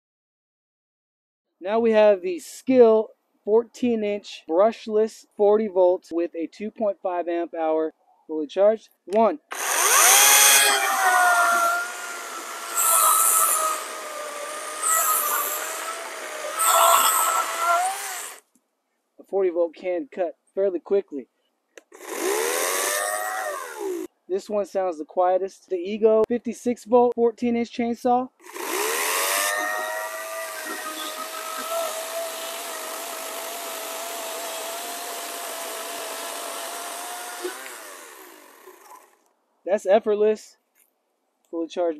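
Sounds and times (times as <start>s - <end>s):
electric chainsaw motor whine: 9.5s - 18.4s, 21.9s - 24.1s, 28.4s - 39.2s
chain rasping in wood: 9.7s - 18.4s.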